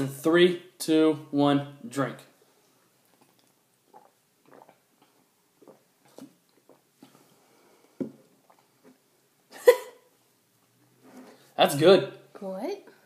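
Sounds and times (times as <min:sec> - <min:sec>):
people gulping drinks: 0:03.0 - 0:09.1.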